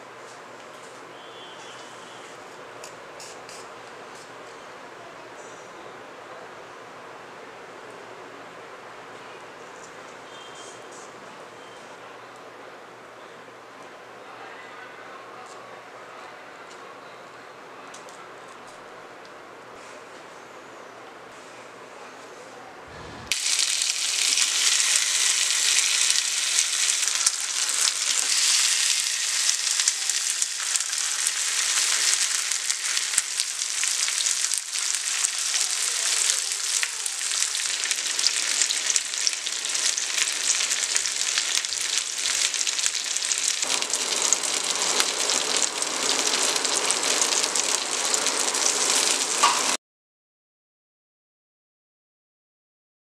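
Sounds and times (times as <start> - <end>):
skewers sizzling in grill pan: 23.3 - 49.8.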